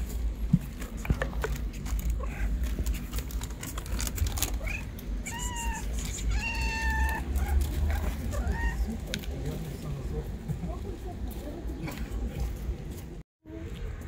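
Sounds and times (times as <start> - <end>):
low steady rumble: 0.0 - 14.0
cat meowing: 4.6 - 9.0.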